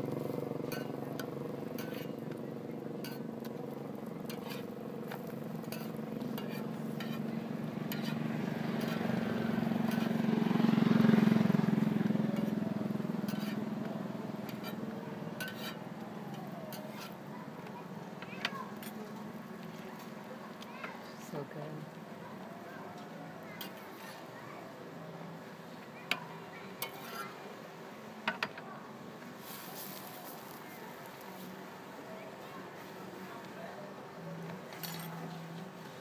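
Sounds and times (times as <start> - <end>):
vehicle engine passing: 0.0 - 17.4
light clinks and clicks: 34.7 - 35.4.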